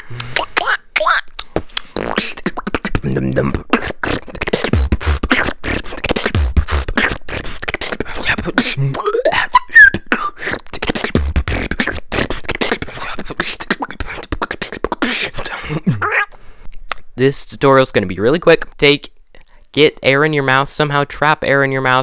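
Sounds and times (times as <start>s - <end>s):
high beatbox squeal: 0.0s - 16.4s
person beatboxing: 0.0s - 17.1s.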